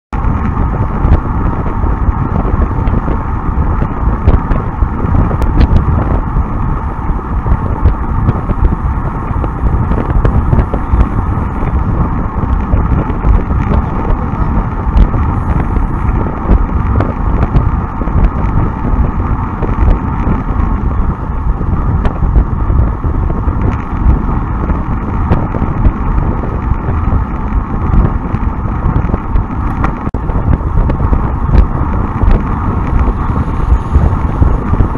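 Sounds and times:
road rumble: 0.1 - 34.9
wind on microphone: 0.1 - 34.9.

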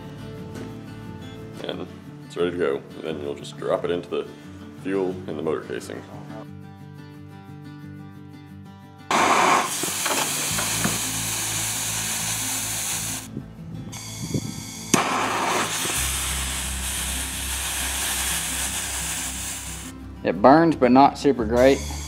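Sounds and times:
background music: 0.0 - 22.0
rocket fuel burning: 9.1 - 13.3, 13.9 - 19.9
torch flame hissing: 9.1 - 13.3, 13.9 - 20.0, 21.6 - 22.0.

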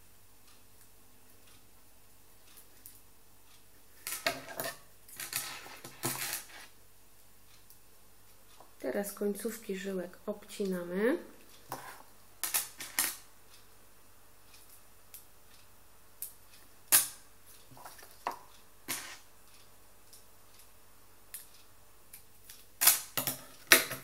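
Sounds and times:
bracelets set on tabletop: 4.0 - 6.7, 11.7 - 13.2, 17.8 - 19.2.

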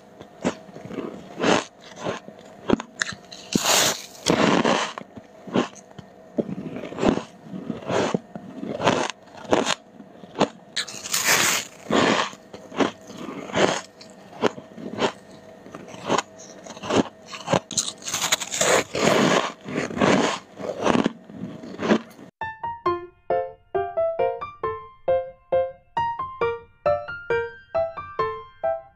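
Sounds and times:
frost crunching while chewed: 0.1 - 22.3.

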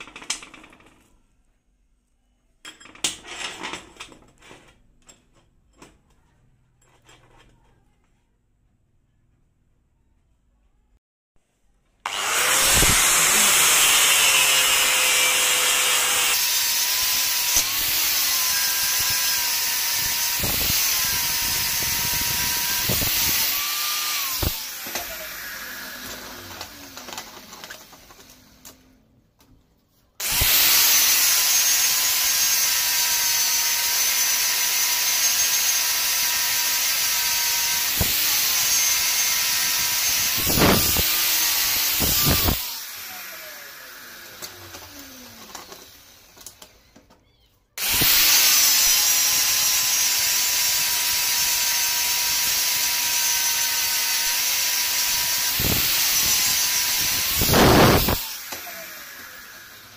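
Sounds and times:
angle grinder grinding steel: 12.1 - 29.0, 30.2 - 46.8, 47.8 - 59.9
grinder winding down: 12.1 - 29.0, 30.2 - 46.8, 47.8 - 59.9.

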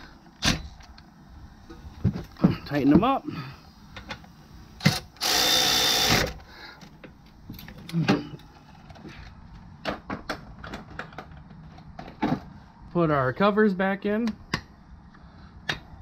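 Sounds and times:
electric ratchet running: 4.8 - 6.4.

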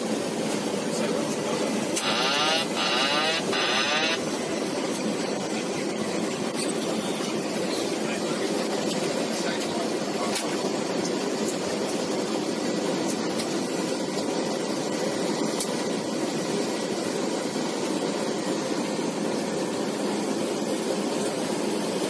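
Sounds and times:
aircraft engine noise: 0.0 - 22.0.

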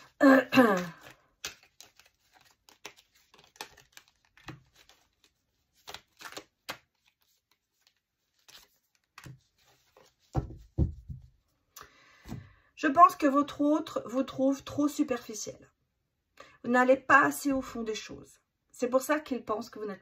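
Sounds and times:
cards shuffling and rustling: 0.0 - 11.5.

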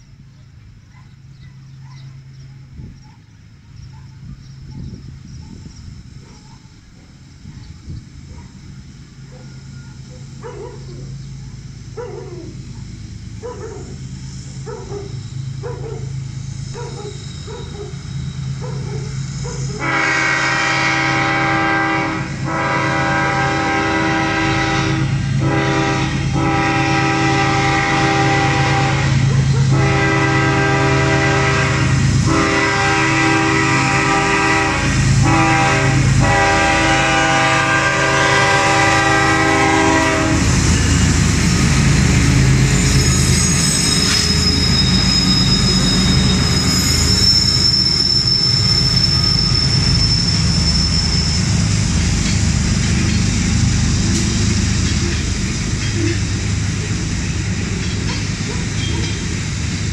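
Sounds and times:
locomotive engines rumbling: 0.0 - 59.9
train wheel squeal: 0.8 - 22.0, 22.6 - 59.9
locomotive air horn blasts: 19.7 - 41.3, 42.4 - 52.0.

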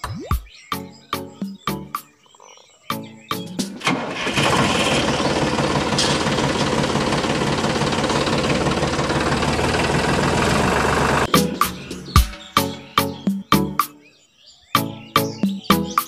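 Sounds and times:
motor knocking rumble: 4.4 - 11.3.

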